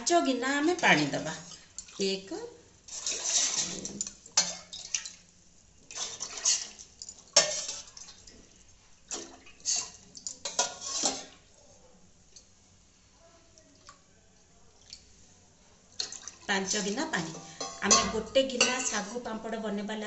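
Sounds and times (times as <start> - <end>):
water pouring into metal pot: 2.9 - 8.3.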